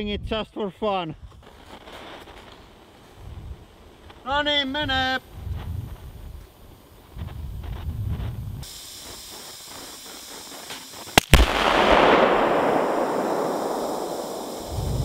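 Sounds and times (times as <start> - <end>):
balloon explosion double crack: 11.1 - 15.0
rushing rumble: 11.4 - 15.0.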